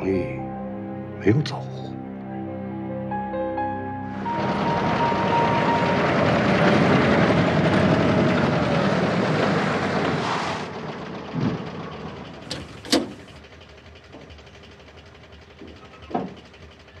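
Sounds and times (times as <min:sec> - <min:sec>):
jeep engine running loudly: 0:04.1 - 0:17.0.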